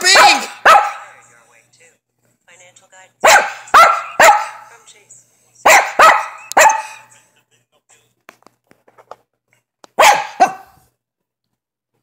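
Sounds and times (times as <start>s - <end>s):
dog barking: 0.0s - 1.1s, 3.2s - 4.7s, 5.6s - 7.1s, 10.0s - 10.8s.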